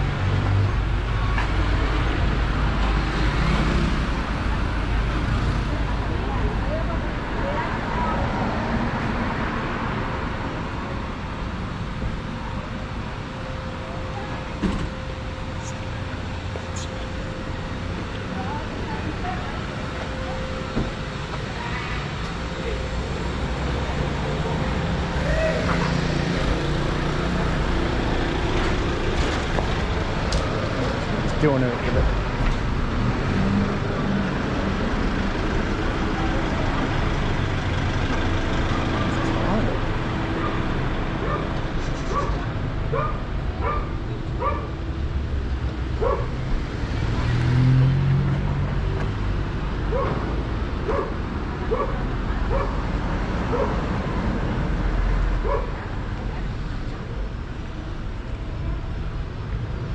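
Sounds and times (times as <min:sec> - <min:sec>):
street traffic: 0:00.0 - 0:59.9
vehicle engine rumbling: 0:00.0 - 0:59.9
dog barking: 0:41.2 - 0:41.5, 0:42.1 - 0:44.7, 0:46.0 - 0:46.3, 0:49.9 - 0:50.2, 0:50.9 - 0:52.8, 0:53.5 - 0:53.8, 0:55.4 - 0:55.8.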